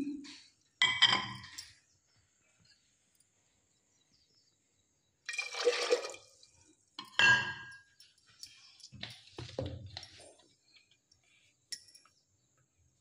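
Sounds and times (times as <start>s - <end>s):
water splashing into pot: 5.3s - 6.4s.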